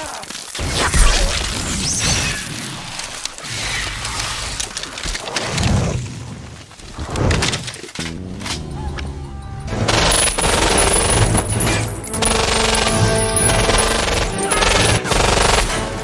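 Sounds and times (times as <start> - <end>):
loud crackling and shattering rush: 0.0 - 7.9.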